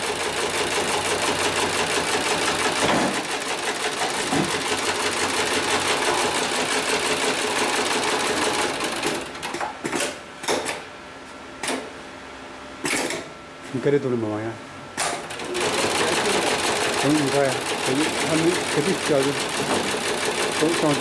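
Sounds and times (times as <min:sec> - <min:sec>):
sewing machine clattering: 0:00.1 - 0:09.6, 0:15.2 - 0:21.0.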